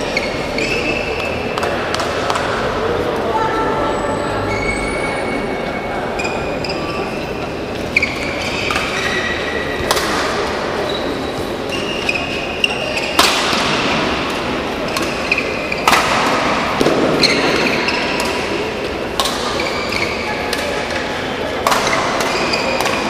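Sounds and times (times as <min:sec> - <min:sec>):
shoes squeaking on court floor: 0:00.0 - 0:01.8, 0:04.0 - 0:16.5, 0:17.1 - 0:23.0
rackets hitting shuttlecock: 0:00.2 - 0:02.7, 0:08.0 - 0:10.9, 0:11.5 - 0:23.0.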